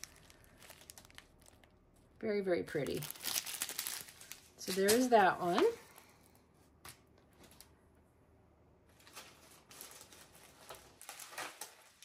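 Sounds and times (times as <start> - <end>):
plastic packaging rustling: 0.0 - 2.1, 2.7 - 6.0, 8.9 - 12.0.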